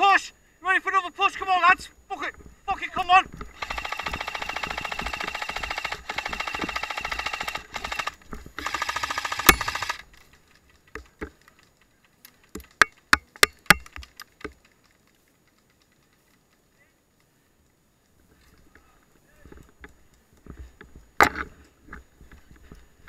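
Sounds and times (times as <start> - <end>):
sharp clicks: 2.8 - 17.8
airsoft gun firing full auto: 3.6 - 10.1.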